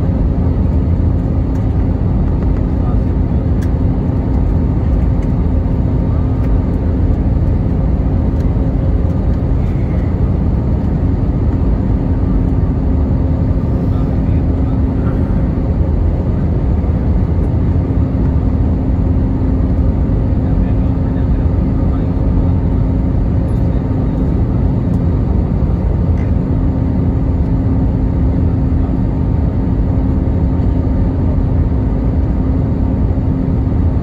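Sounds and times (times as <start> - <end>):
airliner engine and airflow roar: 0.0 - 34.0
steady low hum: 0.0 - 34.0.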